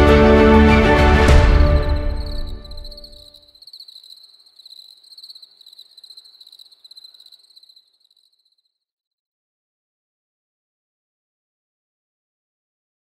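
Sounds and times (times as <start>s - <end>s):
music track: 0.0s - 2.9s
crickets chirping: 1.4s - 8.8s.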